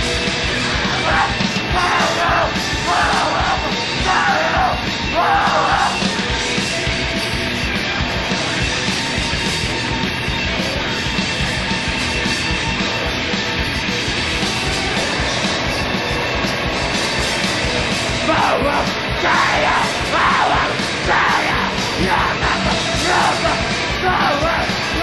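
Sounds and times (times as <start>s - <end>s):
distorted hardcore punk music: 0.0s - 25.0s
shouted vocal bursts: 0.8s - 6.0s, 18.2s - 25.0s.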